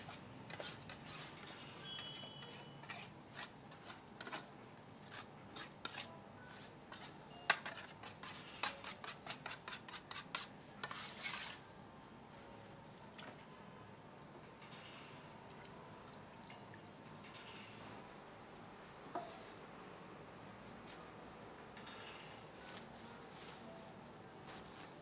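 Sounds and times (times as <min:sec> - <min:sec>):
scraping and rubbing: 0:07.7 - 0:11.6.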